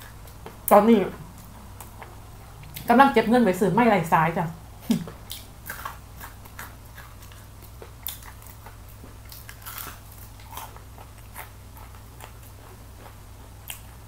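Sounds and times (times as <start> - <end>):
faint low hum: 0.0 - 14.0
crunching fried chicken: 4.8 - 14.0.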